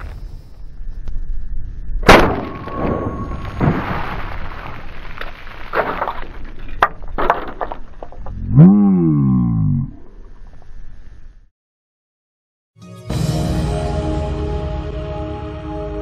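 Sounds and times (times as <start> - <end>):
shotgun blast: 2.0 - 4.2.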